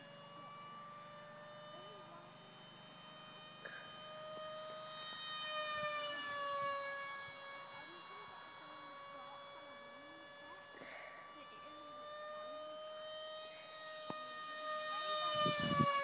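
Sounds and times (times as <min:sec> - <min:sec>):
electric ducted fan whine: 0:00.0 - 0:16.0.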